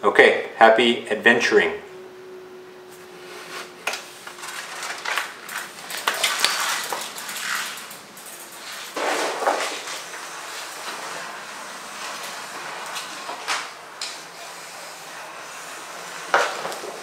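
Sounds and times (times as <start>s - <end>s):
faint steady hum: 0.0s - 17.0s
clatter of things being handled: 3.8s - 10.0s.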